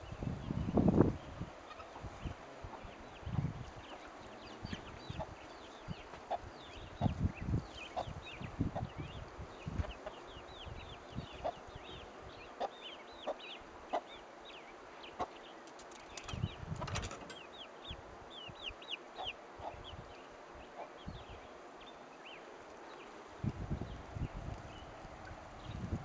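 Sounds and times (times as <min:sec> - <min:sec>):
chicks peeping: 0:01.7 - 0:15.4, 0:16.0 - 0:20.0
hen clucking: 0:07.8 - 0:08.9, 0:11.2 - 0:11.6, 0:12.5 - 0:14.2.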